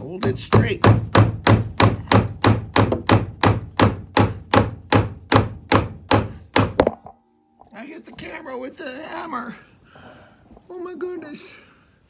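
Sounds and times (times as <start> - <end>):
claw hammer hitting nail into wood: 0.2 - 7.1.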